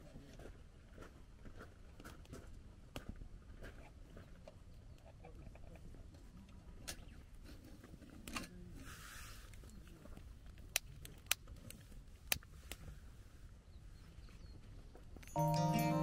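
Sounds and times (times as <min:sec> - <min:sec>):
faint low background noise: 0:08.4 - 0:16.0.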